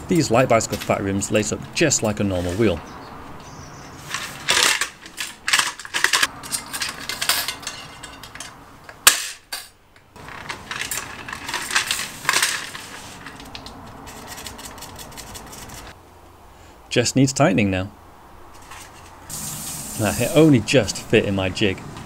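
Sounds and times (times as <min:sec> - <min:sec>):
metal spokes clinking and rattling: 0:04.0 - 0:16.0.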